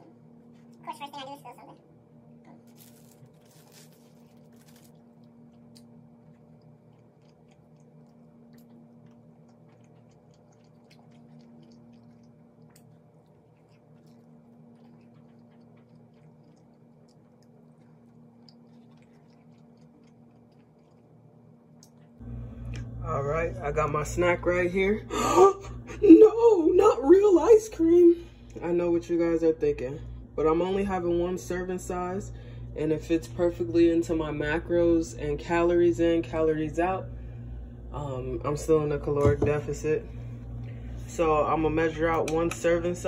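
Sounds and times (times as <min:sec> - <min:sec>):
steady low hum: 0:00.0 - 0:43.0
faint chewing: 0:02.5 - 0:23.0.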